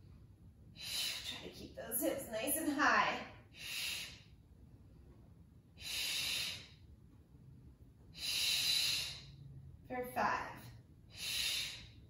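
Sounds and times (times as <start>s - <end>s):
woman breathing heavily: 0.7s - 2.8s, 3.4s - 6.9s, 8.0s - 12.0s.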